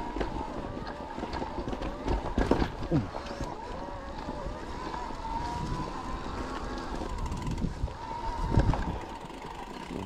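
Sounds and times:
electric bike motor whining: 0:00.0 - 0:10.0
wind buffeting microphone: 0:00.0 - 0:10.0.

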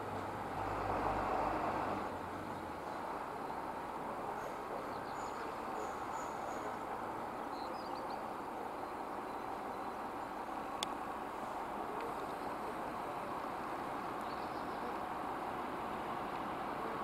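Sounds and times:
distant locomotive rumble: 0:00.0 - 0:17.0
bird chirps: 0:14.2 - 0:14.9.

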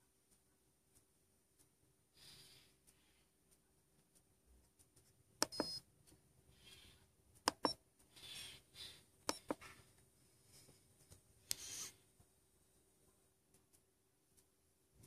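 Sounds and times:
short electronic beeps: 0:05.5 - 0:05.8.

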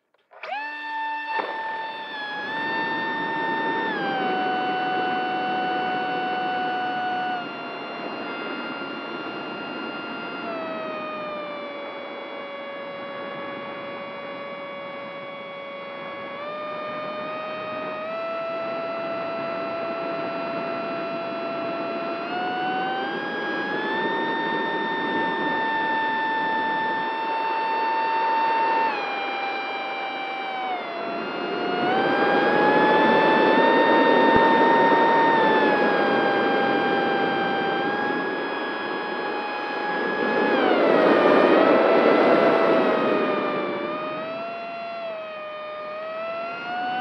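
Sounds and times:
electric motor whine: 0:00.0 - 0:47.0
wind on microphone: 0:00.4 - 0:47.0.

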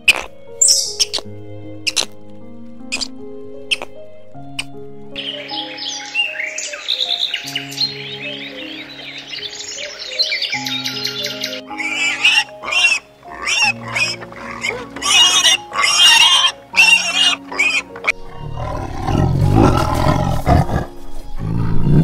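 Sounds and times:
background music with held notes: 0:00.0 - 0:22.0
pigs squealing: 0:11.6 - 0:21.0
tiger growling low: 0:18.1 - 0:22.0.

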